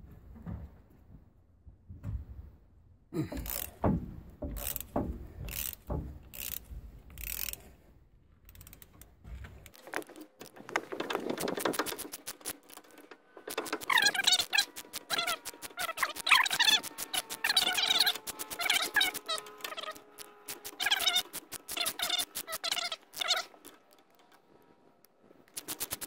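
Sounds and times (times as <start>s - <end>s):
socket ratchet wrench clicking: 3.4s - 3.8s, 4.6s - 7.7s, 11.9s - 23.9s, 25.5s - 26.0s.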